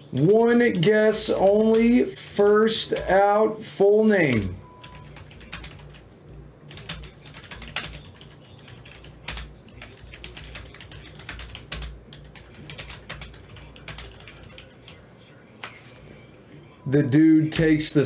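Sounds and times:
keyboard typing: 0:01.3 - 0:02.0, 0:04.3 - 0:06.0, 0:06.7 - 0:15.0.

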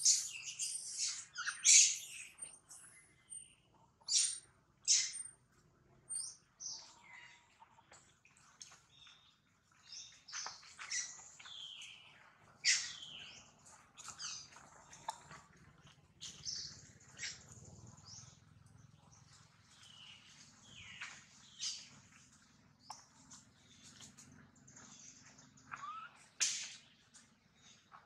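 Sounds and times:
baby monkey crying squeaks: 0:00.0 - 0:02.2, 0:25.7 - 0:26.2.

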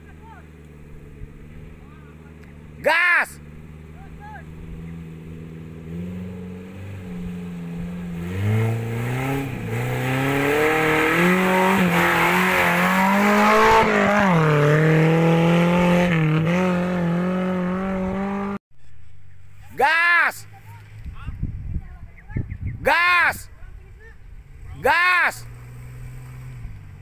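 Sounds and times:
engine revving hard: 0:04.4 - 0:18.6, 0:25.3 - 0:27.0.

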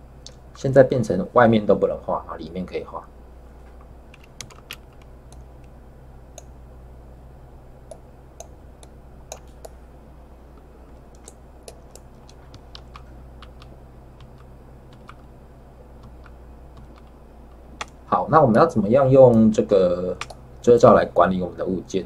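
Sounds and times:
steady low hum: 0:00.0 - 0:22.0
mouse and keyboard clicks: 0:11.1 - 0:15.3.

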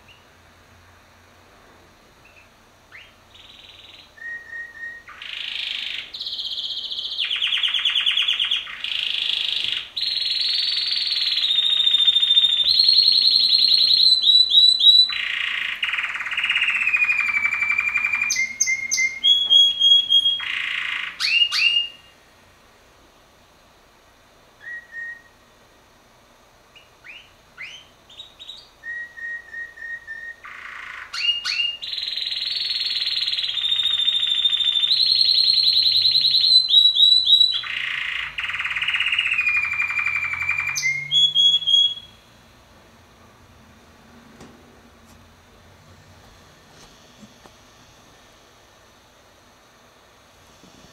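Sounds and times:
canary singing trills: 0:00.0 - 0:00.4, 0:02.2 - 0:22.2, 0:24.6 - 0:25.4, 0:26.7 - 0:42.4
canary short chirps: 0:02.2 - 0:22.1, 0:26.7 - 0:42.2.

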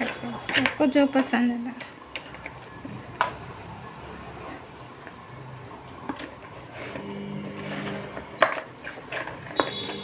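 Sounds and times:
motor-like hum: 0:06.7 - 0:08.5.

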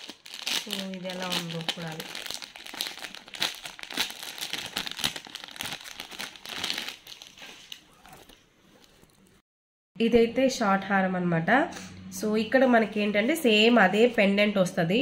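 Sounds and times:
plastic and paper packaging crinkling: 0:00.0 - 0:09.2.

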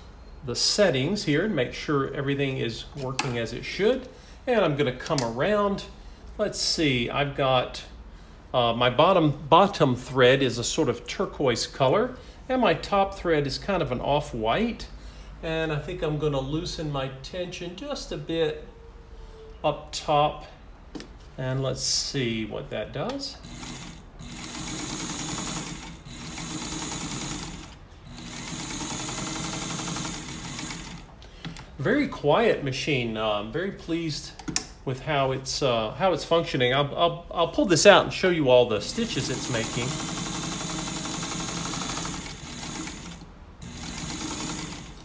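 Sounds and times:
sewing machine stitching: 0:23.4 - 0:31.1, 0:38.8 - 0:45.0.

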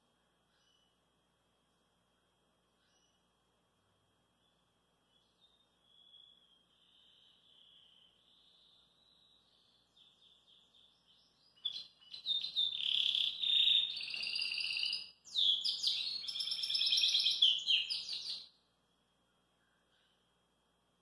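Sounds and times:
canary singing: 0:05.3 - 0:18.5.

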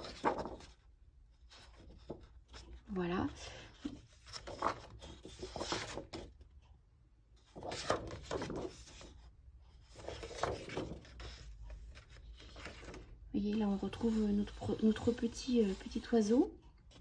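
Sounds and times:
paper sheets rustling: 0:00.0 - 0:00.8, 0:03.8 - 0:06.3, 0:07.5 - 0:09.2, 0:09.8 - 0:16.2.

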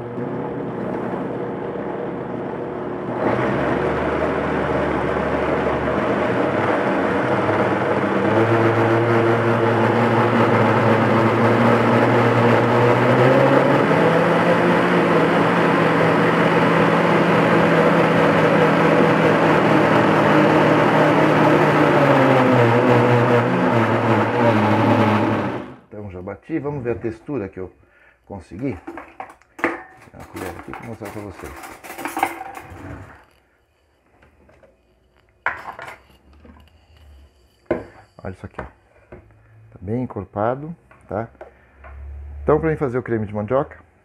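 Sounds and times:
blender motor running: 0:00.0 - 0:25.9.

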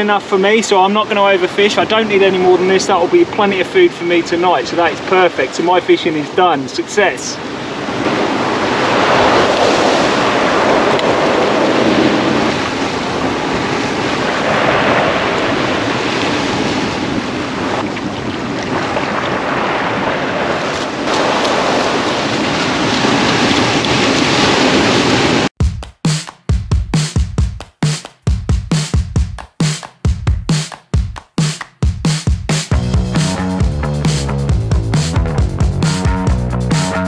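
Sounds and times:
ocean surf breaking on rocks: 0:00.0 - 0:25.5.

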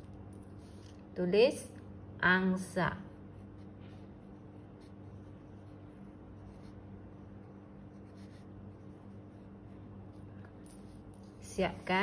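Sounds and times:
pencil scratching on paper: 0:03.0 - 0:12.0.

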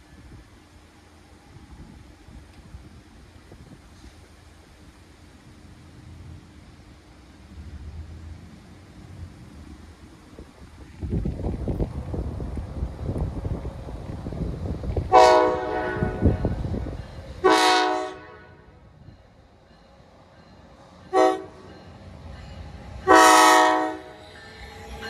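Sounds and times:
wind rumble on microphone: 0:01.5 - 0:04.2, 0:07.6 - 0:17.5
locomotive air horn blasts: 0:15.1 - 0:16.5, 0:17.4 - 0:18.8, 0:21.1 - 0:21.6, 0:23.0 - 0:24.2.

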